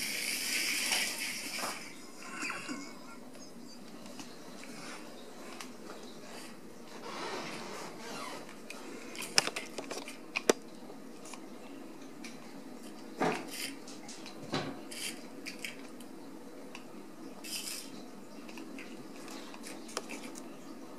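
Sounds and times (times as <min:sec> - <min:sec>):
soft scrapes and rustles: 0:04.1 - 0:10.2.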